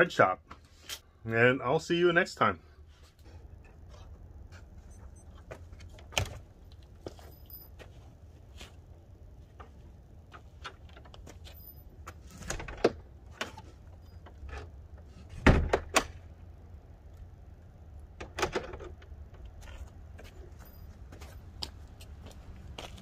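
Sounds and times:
wooden door swinging shut: 15.3s - 16.2s.

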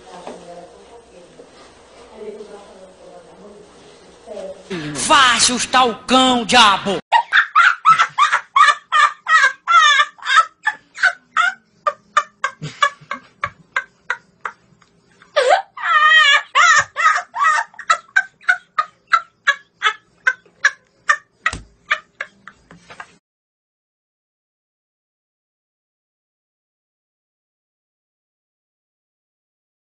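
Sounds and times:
boys laughing: 7.1s - 23.2s.

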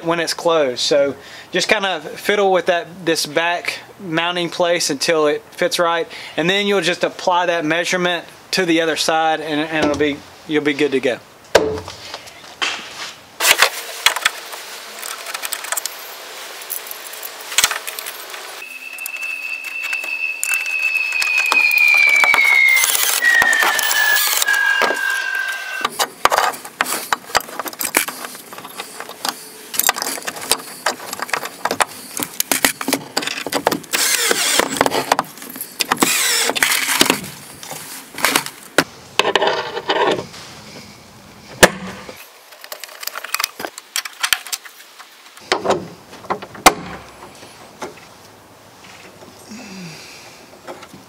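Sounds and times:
cordless drill whine: 17.9s - 25.9s, 33.9s - 34.8s, 36.0s - 37.1s.

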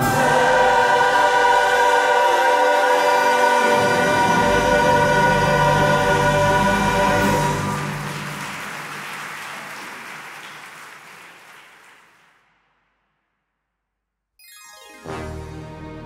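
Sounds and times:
choir holding a chord: 0.0s - 8.5s.

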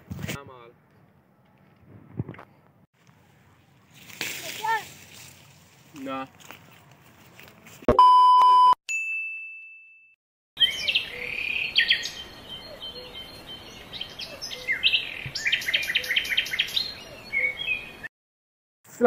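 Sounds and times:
songbirds chirping and singing: 10.6s - 18.1s.

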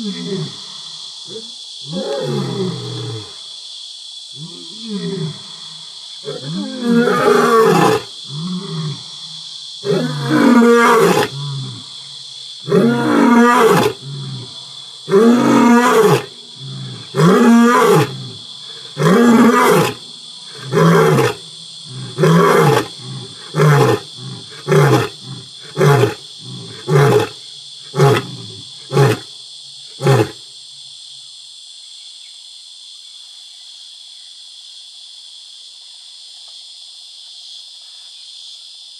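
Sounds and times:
high-pitched insect chorus: 0.0s - 38.9s
lion roaring: 9.8s - 11.9s, 12.6s - 27.3s.

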